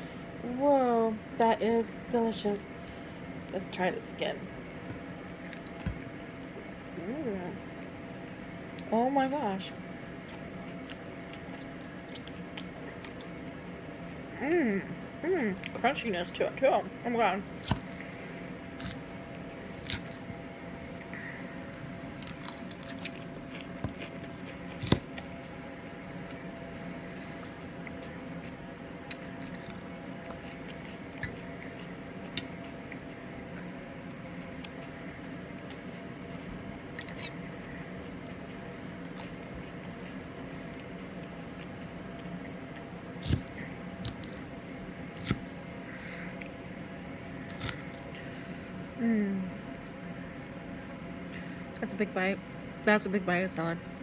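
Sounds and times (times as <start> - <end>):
low steady hum: 0.0 - 54.0
chewing with clicks and squishes: 4.6 - 9.3, 10.1 - 14.3, 22.0 - 25.3, 27.6 - 44.6
quiet chewing: 10.1 - 14.2, 22.0 - 25.5.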